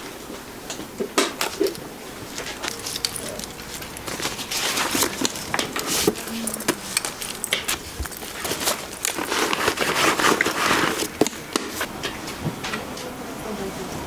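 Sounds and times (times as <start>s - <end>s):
fabric rustling: 1.6s - 11.9s.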